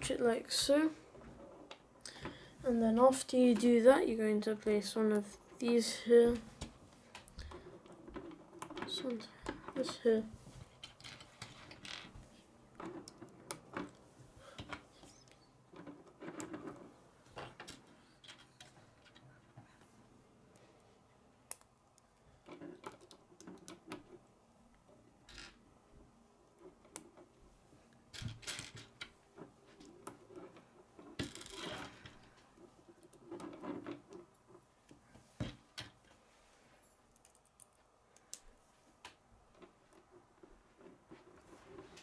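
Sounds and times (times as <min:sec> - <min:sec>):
plastic parts clicking and clattering: 0:10.6 - 0:14.0, 0:14.6 - 0:19.4.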